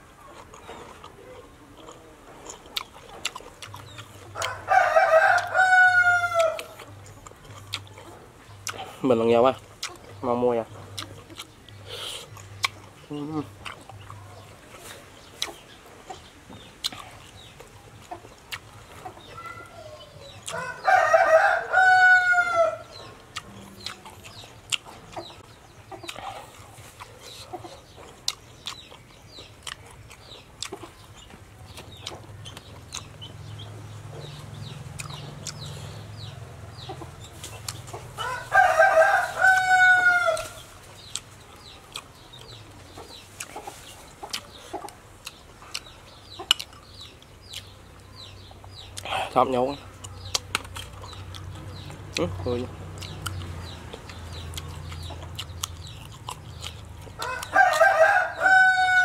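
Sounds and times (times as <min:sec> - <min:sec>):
person eating: 0:00.2 - 0:10.2, 0:10.8 - 0:19.2, 0:22.9 - 0:36.4, 0:37.0 - 0:52.3, 0:52.9 - 0:58.2
rooster crowing: 0:04.4 - 0:06.8, 0:20.5 - 0:22.9, 0:38.2 - 0:40.6, 0:57.2 - 0:59.0.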